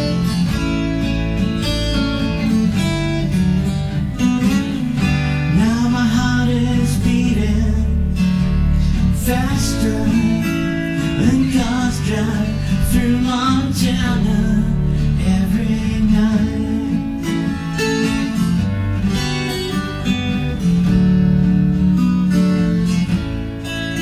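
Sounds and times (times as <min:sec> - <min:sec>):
acoustic guitar playing: 0:00.0 - 0:24.0
man singing: 0:05.3 - 0:18.4.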